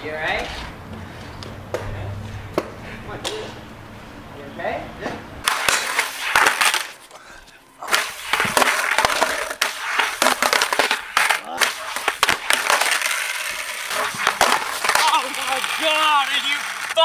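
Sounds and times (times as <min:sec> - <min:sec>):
skateboard clacking on ground: 0:05.4 - 0:07.0, 0:07.8 - 0:17.0
skateboard wheels rolling on asphalt: 0:05.4 - 0:07.0, 0:07.8 - 0:17.0.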